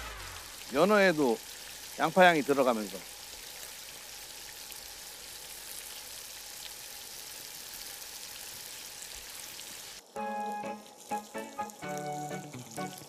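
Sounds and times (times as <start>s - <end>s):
fish and onions sizzling in oil: 0.0s - 13.0s.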